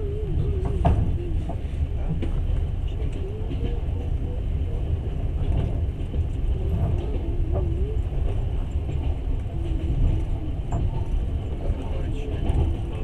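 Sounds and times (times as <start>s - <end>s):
train wheels rumbling: 0.0s - 13.0s.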